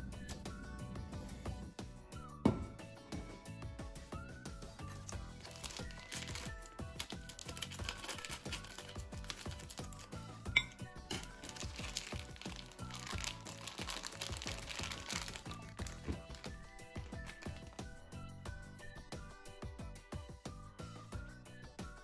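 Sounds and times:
background music: 0.0s - 22.0s
plastic package crinkling: 4.9s - 10.1s, 11.1s - 17.8s.

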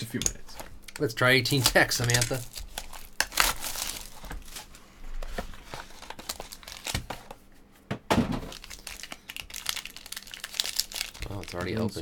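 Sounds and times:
plastic wrap crinkling and tearing: 1.3s - 7.3s, 8.5s - 12.0s.

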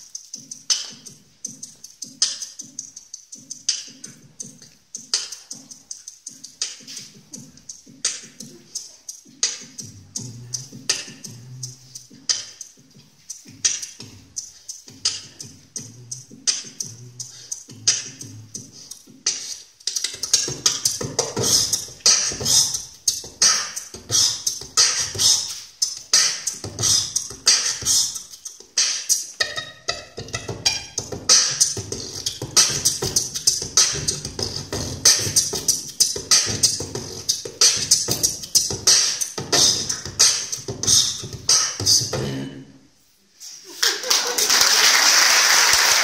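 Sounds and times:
person beatboxing into microphone: 0.0s - 42.8s.

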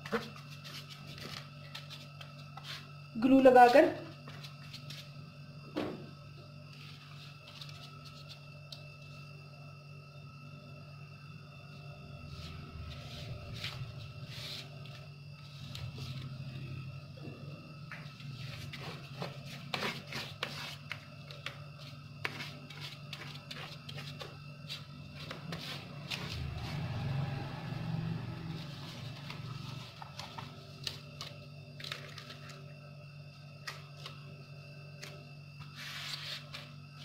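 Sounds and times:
low hum: 24.4s - 35.6s
paper rustling and crackling: 29.2s - 32.6s.

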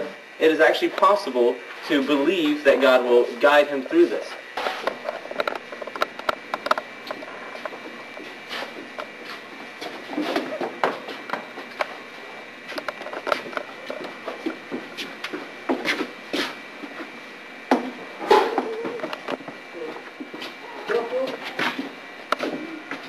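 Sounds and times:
footsteps: 4.3s - 17.2s, 17.8s - 23.0s.

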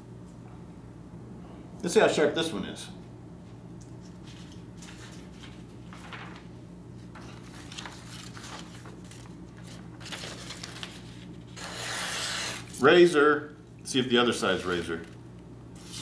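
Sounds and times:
low steady hum: 0.0s - 16.0s
paper rustling: 4.0s - 12.9s, 14.5s - 15.2s, 15.8s - 16.0s
knife slicing paper hiss: 11.6s - 12.8s.

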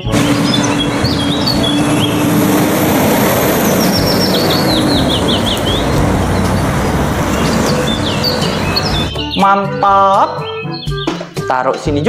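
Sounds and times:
bird falling notes: 0.0s - 9.1s
tanker truck driving by: 0.0s - 9.1s
birds chirping: 0.0s - 9.5s, 10.1s - 11.2s.

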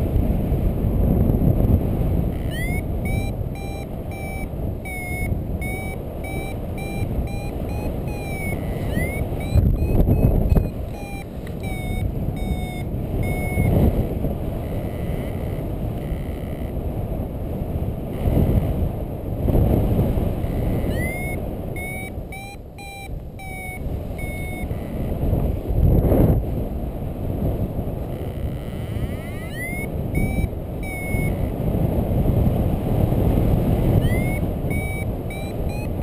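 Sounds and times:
wind rush on microphone: 0.0s - 36.0s
variometer beeping chirps: 2.2s - 16.8s, 20.2s - 25.3s, 28.0s - 31.8s, 33.5s - 36.0s.

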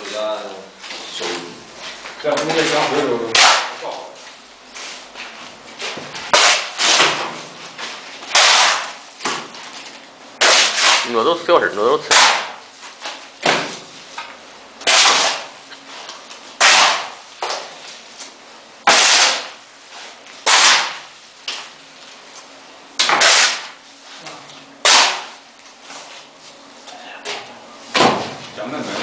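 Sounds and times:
shovels scraping wet mortar: 2.7s - 3.8s, 6.3s - 7.1s, 8.2s - 9.0s, 10.4s - 11.2s, 12.0s - 12.6s, 14.8s - 15.5s, 16.6s - 17.2s, 18.9s - 19.5s, 20.5s - 21.0s, 23.0s - 23.8s, 24.8s - 25.3s.

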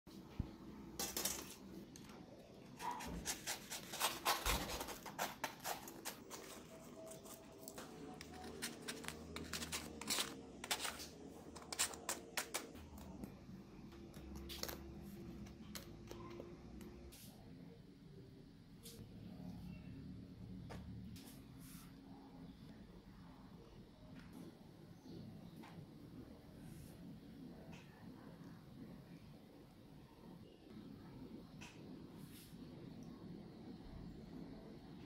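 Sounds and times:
utensil scraping: 2.6s - 12.8s.

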